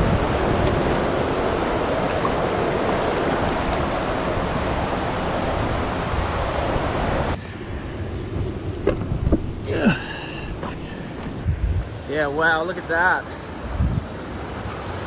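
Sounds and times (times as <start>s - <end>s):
whitewater rushing: 0.0s - 7.4s, 11.5s - 15.0s.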